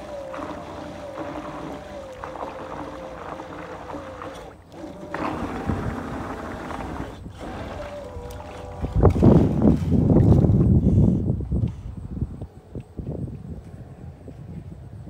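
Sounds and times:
electric motor whining: 0.0s - 10.0s.

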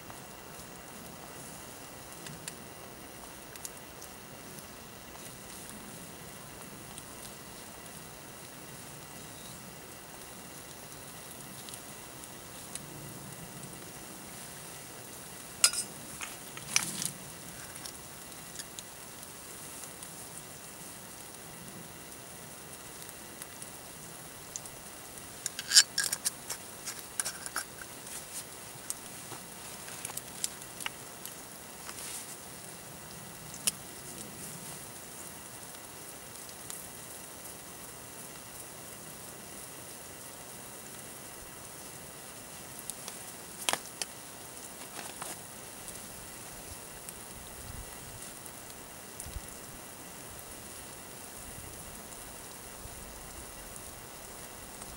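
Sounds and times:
eggs sizzling in a frying pan: 0.0s - 54.9s
sharp clicks and scrapes: 25.4s - 31.0s.

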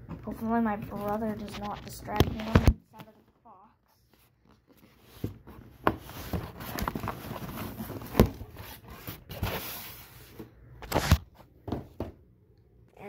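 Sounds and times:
cardboard box rustling and scraping: 4.8s - 11.2s.

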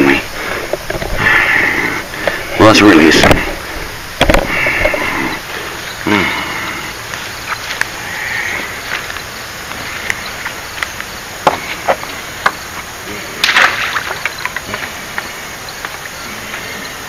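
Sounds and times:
footsteps on loose stones and grass: 7.1s - 8.0s.

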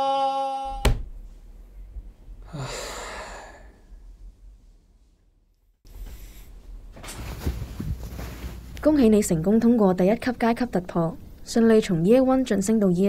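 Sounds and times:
person sighing: 0.0s - 0.8s, 2.4s - 3.9s.

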